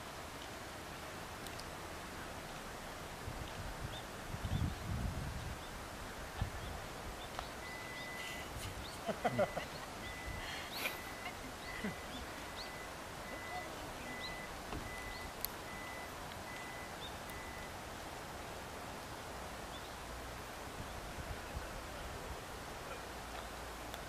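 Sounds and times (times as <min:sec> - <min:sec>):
open-air background hiss: 0:00.0 - 0:24.0
faint bird chirps: 0:06.5 - 0:17.7.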